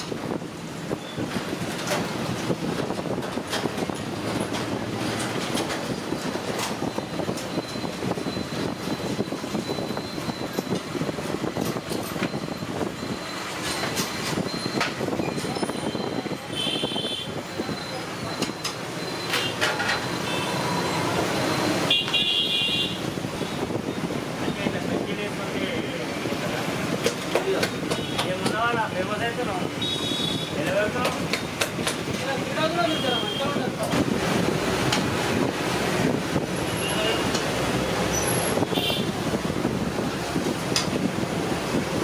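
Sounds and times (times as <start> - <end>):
street traffic noise: 0.0 - 42.0
vehicle horn toots: 16.5 - 17.3, 21.8 - 23.0, 29.8 - 30.6.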